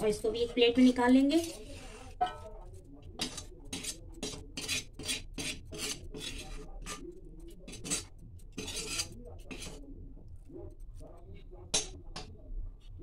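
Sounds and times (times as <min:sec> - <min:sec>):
metal spoon scraping metal wok: 0:00.8 - 0:02.4, 0:03.2 - 0:09.8.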